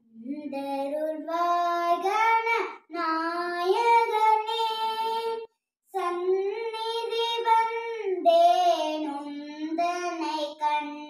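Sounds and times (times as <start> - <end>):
girl singing unaccompanied: 0.0 - 11.0.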